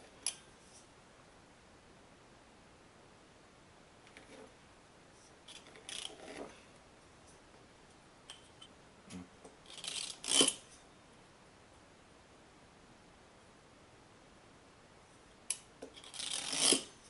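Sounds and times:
pastry wheel scraping dough: 0:15.9 - 0:17.0.

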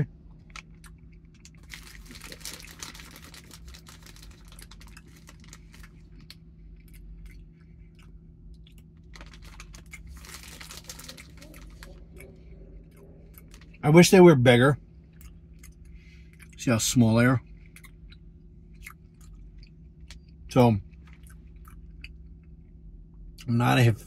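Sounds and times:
foil snack pouch crinkling: 0:01.4 - 0:06.4, 0:09.0 - 0:12.0.

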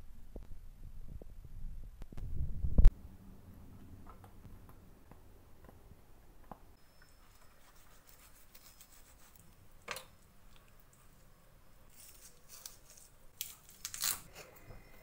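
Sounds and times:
scissors and knife scraping fish: 0:11.9 - 0:14.3.

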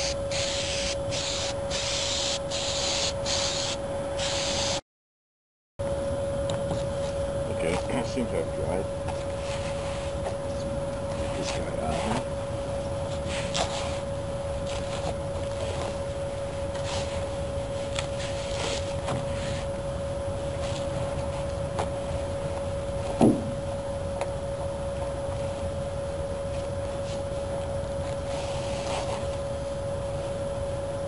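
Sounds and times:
steady hum: 0:00.0 - 0:04.8, 0:05.8 - 0:31.0.

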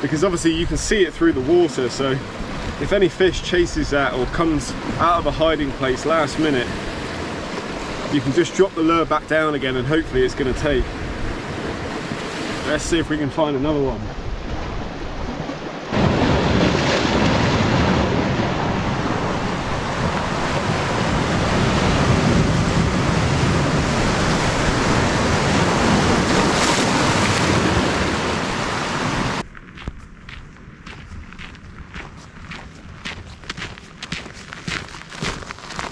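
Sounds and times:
surf breaking on rocks: 0:00.1 - 0:29.4
footsteps on gravel: 0:29.4 - 0:35.9.

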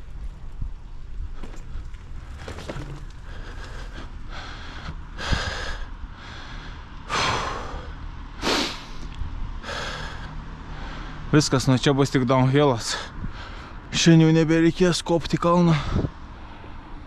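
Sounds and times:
steady low rumble: 0:00.0 - 0:11.5
man breathing hard: 0:03.2 - 0:11.3, 0:12.9 - 0:13.9.

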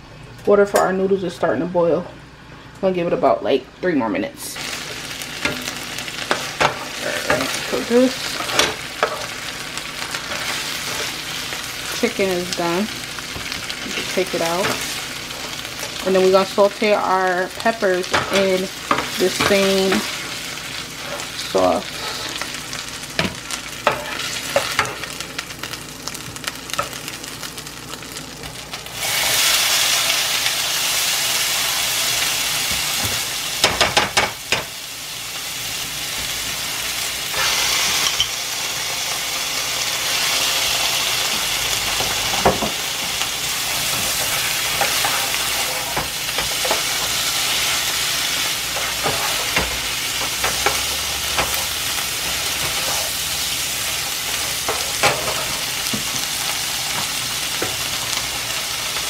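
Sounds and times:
peppers sizzling in hot pan: 0:04.4 - 0:59.0
spatula scraping and tapping pan: 0:23.2 - 0:25.0, 0:48.7 - 0:51.7.

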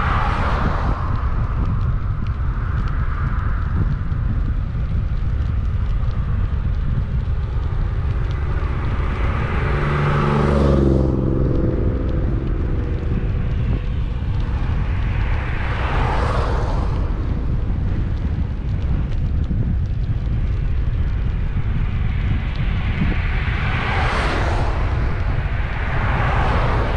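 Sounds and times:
vehicle tyre noise: 0:00.0 - 0:26.9
wind rumble on microphone: 0:00.0 - 0:26.9
vehicle engine passing: 0:07.0 - 0:18.4, 0:21.5 - 0:26.9.

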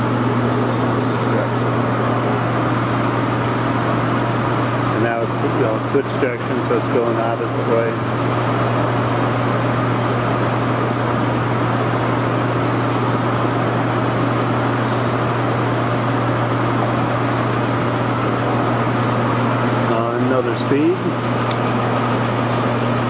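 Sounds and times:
lathe running with low drone: 0:00.0 - 0:23.0.

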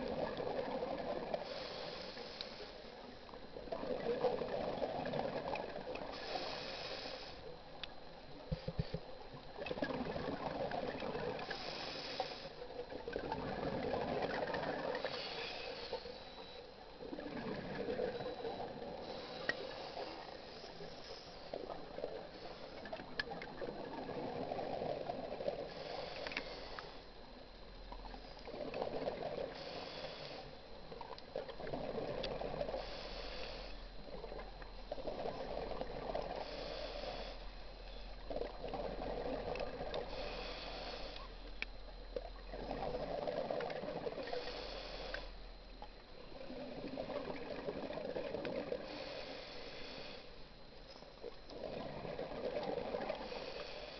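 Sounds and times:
regulator inhalation hiss: 0:01.4 - 0:02.9, 0:06.1 - 0:07.5, 0:11.4 - 0:12.6, 0:15.0 - 0:16.4, 0:19.0 - 0:22.9, 0:25.6 - 0:27.0, 0:29.4 - 0:30.6, 0:32.7 - 0:33.9, 0:36.3 - 0:38.1, 0:40.1 - 0:41.5, 0:44.2 - 0:45.5, 0:48.8 - 0:50.5, 0:53.1 - 0:53.9
exhaled bubbles rushing: 0:09.6 - 0:11.4, 0:13.1 - 0:15.0, 0:17.1 - 0:18.8.

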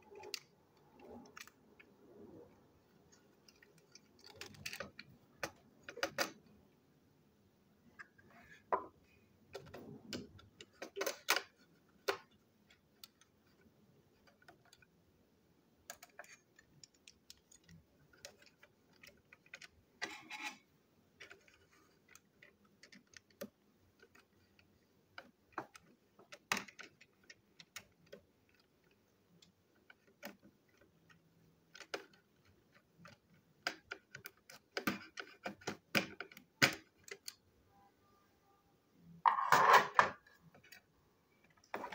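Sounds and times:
plastic toy parts clicking: 0:00.0 - 0:01.9, 0:03.0 - 0:06.6, 0:09.5 - 0:15.0, 0:15.8 - 0:37.4.

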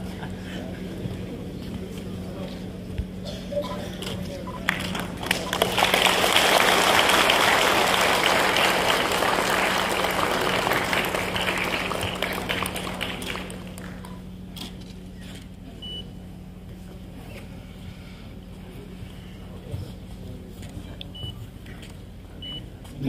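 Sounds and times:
steady low hum: 0:00.0 - 0:23.0
audience applauding: 0:04.6 - 0:14.2.

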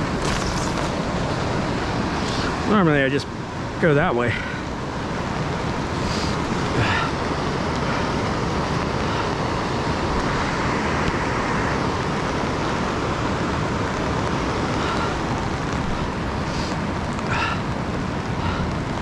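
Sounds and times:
river rushing through rapids: 0:00.0 - 0:19.0.

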